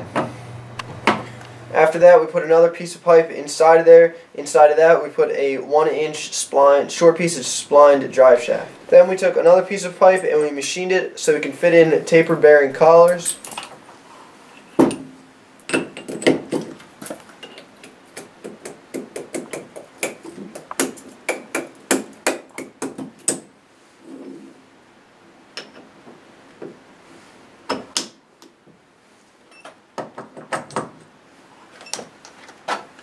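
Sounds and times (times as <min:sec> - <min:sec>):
metal knocks and clinks: 0:13.0 - 0:13.7, 0:14.6 - 0:18.1.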